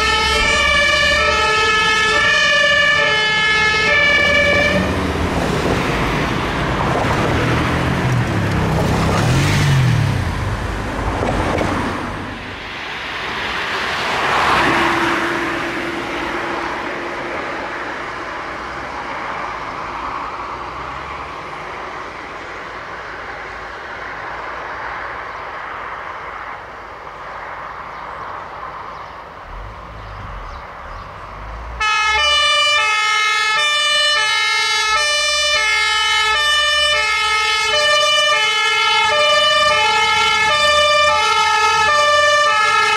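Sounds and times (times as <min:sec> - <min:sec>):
two-tone fire engine siren: 0:00.0 - 0:05.2, 0:31.8 - 0:42.9
passing traffic: 0:00.0 - 0:42.9.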